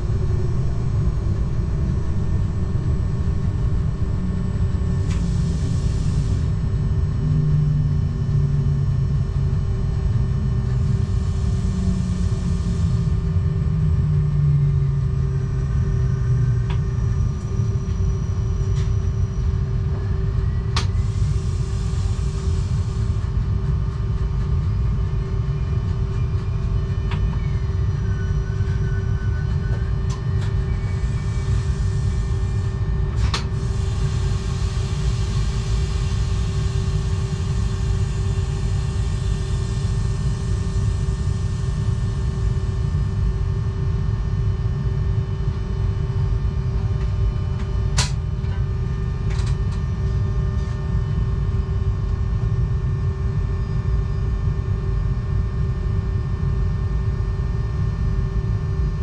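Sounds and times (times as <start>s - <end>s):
constant hum: 0.0s - 59.0s
train wheels rumbling on rail: 20.8s - 42.7s.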